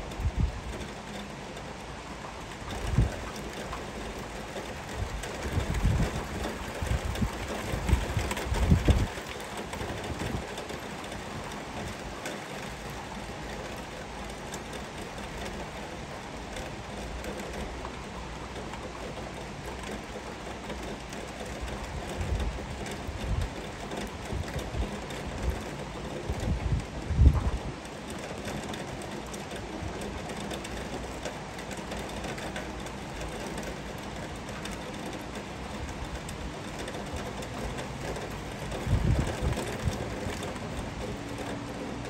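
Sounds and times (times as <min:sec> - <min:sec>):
heavy rain falling: 0:00.0 - 0:42.0
low rumbling gusts: 0:04.9 - 0:09.2, 0:26.2 - 0:27.9, 0:37.7 - 0:42.0.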